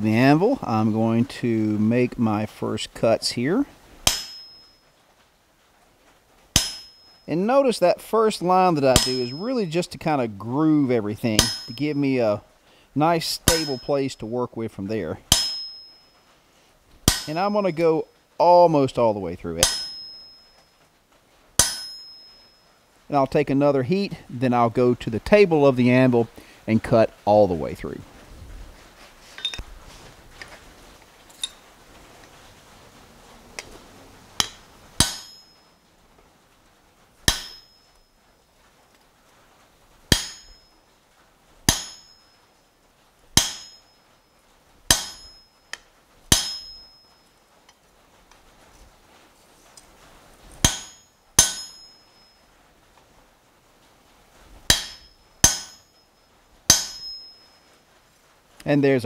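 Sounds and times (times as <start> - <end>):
hammer striking chisel: 4.0 - 4.6, 6.6 - 7.1, 8.9 - 9.4, 11.4 - 12.0, 13.4 - 13.9, 15.3 - 15.9, 17.1 - 17.5, 19.6 - 20.4, 21.6 - 22.3, 34.4 - 35.5, 37.3 - 37.7, 40.1 - 40.6, 41.7 - 42.2, 43.4 - 43.9, 44.9 - 46.9, 50.6 - 52.0, 54.7 - 56.0, 56.7 - 57.4.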